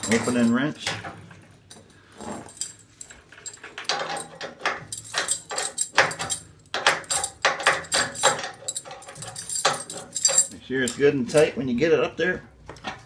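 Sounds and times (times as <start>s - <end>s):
wrench clinking against metal nut: 0.0s - 0.6s, 1.7s - 11.5s.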